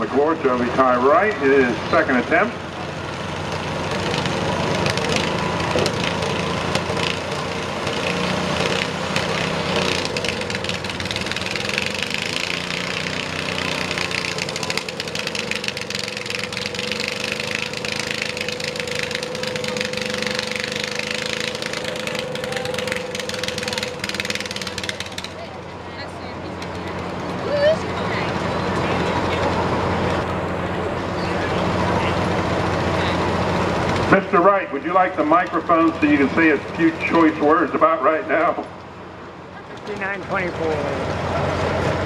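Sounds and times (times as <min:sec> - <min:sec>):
small engine running under load: 0:00.0 - 0:42.0.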